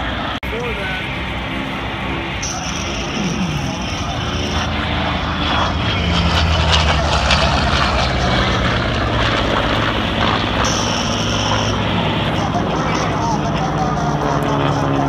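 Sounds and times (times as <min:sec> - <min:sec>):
propeller plane engine droning: 0:00.0 - 0:15.0.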